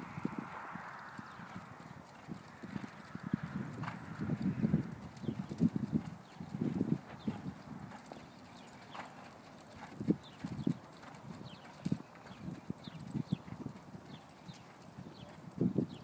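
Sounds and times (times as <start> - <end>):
horse hoofbeats: 0.5 - 16.0.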